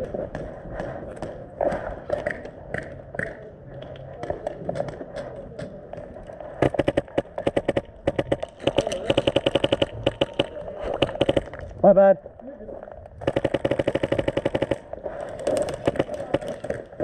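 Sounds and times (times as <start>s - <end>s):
airsoft rifle bursts: 6.6s - 11.6s, 13.2s - 17.0s.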